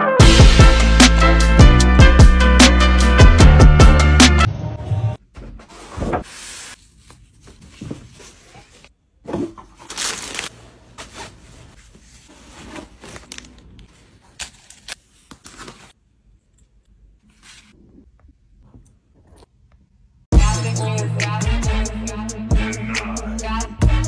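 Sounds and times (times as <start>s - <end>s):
paper and plastic rustling: 5.6s - 8.9s, 9.6s - 16.0s.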